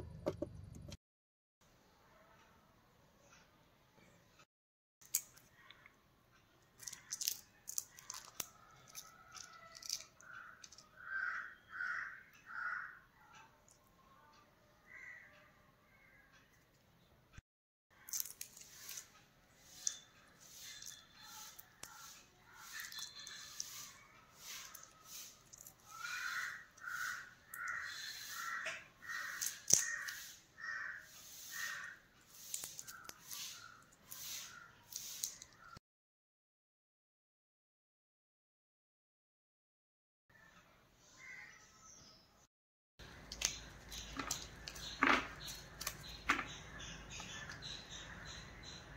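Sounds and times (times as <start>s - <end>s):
sharp clicks and crackles: 6.7s - 10.9s, 18.0s - 23.9s, 28.6s - 30.2s, 43.0s - 47.7s
crow cawing: 9.4s - 13.0s, 14.9s - 15.3s, 25.9s - 32.0s.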